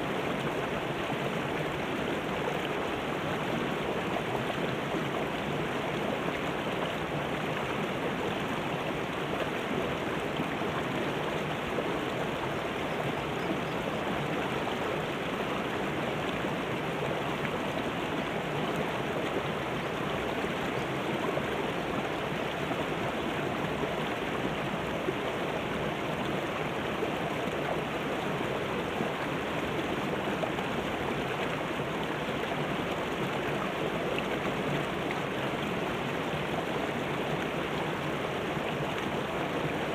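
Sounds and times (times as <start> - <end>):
river rushing over rocks: 0.0 - 39.9.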